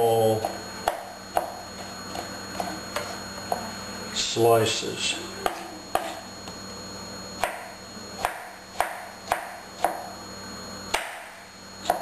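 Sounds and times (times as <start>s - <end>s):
knife chopping tomatoes: 0.4s - 3.6s, 5.4s - 6.3s, 8.2s - 10.1s, 10.9s - 12.0s.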